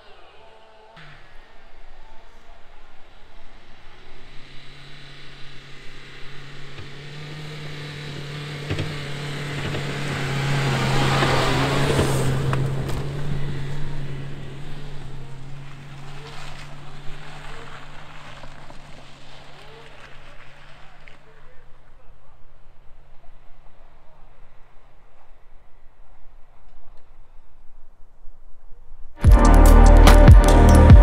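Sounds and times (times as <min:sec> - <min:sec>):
tyre noise on muddy track: 0:00.0 - 0:27.6
diesel car engine revving: 0:01.0 - 0:21.2, 0:29.2 - 0:31.0.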